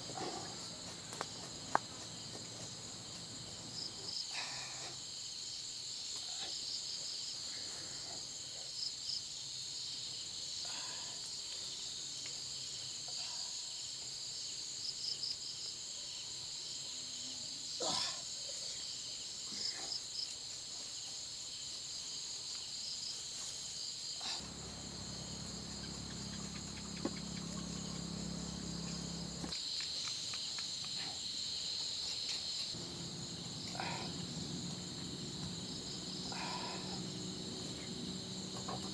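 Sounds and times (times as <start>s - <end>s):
insects chirring: 0.0s - 38.9s
low hum: 24.4s - 29.5s, 32.8s - 38.9s.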